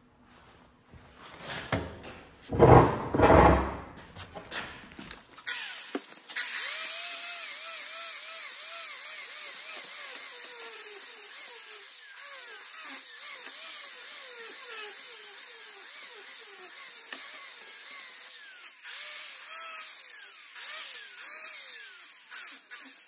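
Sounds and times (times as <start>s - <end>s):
angle grinder on metal: 5.4s - 23.0s.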